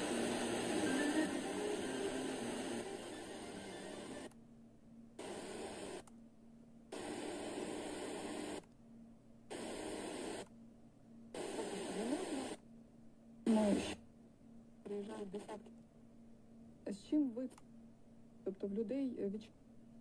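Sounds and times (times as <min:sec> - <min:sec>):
radio static hiss: 0:00.0 - 0:04.3, 0:05.2 - 0:06.0, 0:07.0 - 0:08.6, 0:09.5 - 0:10.4, 0:11.4 - 0:12.6, 0:13.5 - 0:14.0.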